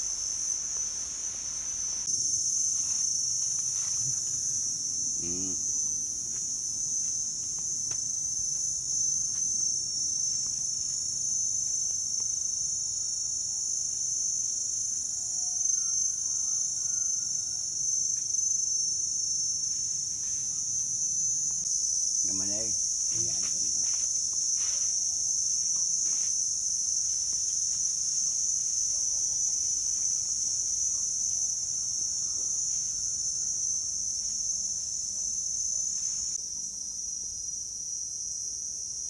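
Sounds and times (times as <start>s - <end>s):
insect chorus drone: 0.0s - 39.0s
faint chirps: 5.2s - 5.8s.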